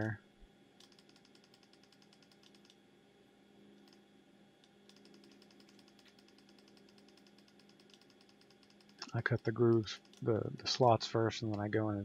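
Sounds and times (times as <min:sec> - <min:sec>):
low steady hum: 0:00.0 - 0:12.0
faint rapid high ticking: 0:00.8 - 0:02.8, 0:04.9 - 0:11.7.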